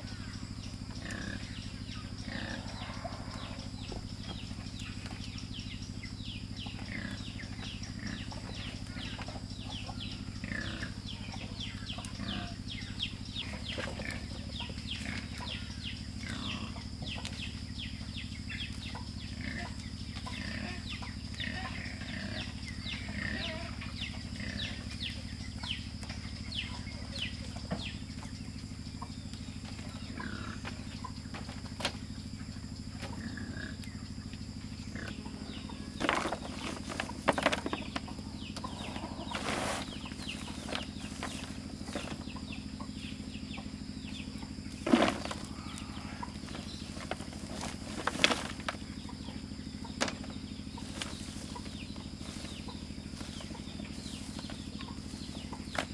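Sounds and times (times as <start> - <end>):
chickens clucking and peeping: 0.0 - 55.9.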